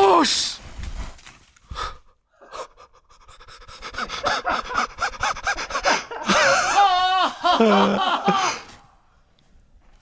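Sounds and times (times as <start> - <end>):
man panting hard: 1.7 - 6.5.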